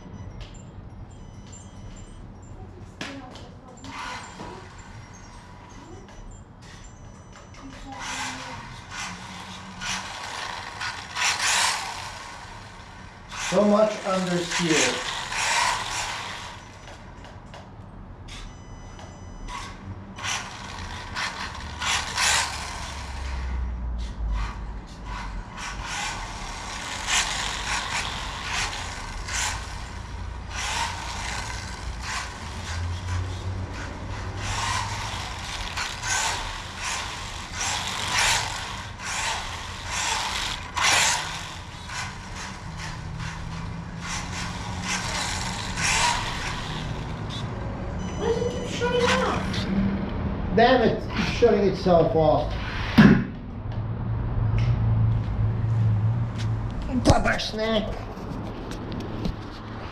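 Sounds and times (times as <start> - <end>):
rc car motor whirring: 3.3 - 17.4, 18.3 - 49.7
knocks and scrapes of toy car: 24.0 - 47.5.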